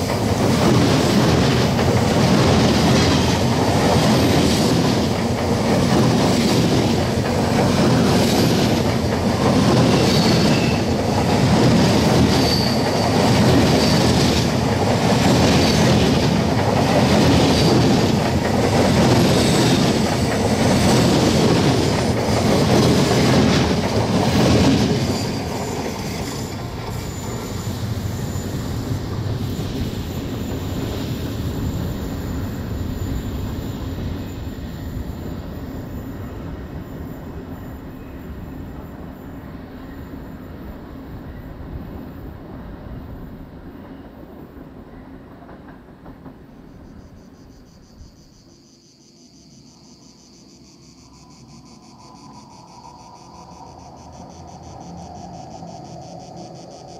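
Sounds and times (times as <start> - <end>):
train wheels on rails: 0.0 - 48.6
insects chirping: 0.0 - 56.9
wheel squeal: 9.8 - 11.0, 12.3 - 14.4, 25.0 - 28.8.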